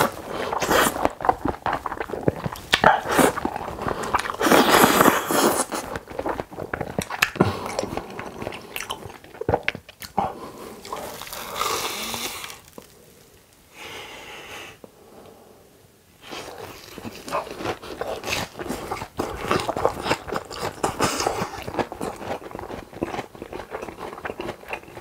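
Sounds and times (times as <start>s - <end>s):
noodle slurping: 0.0s - 9.6s, 10.5s - 12.9s
wet chewing: 0.0s - 13.0s, 16.3s - 25.0s.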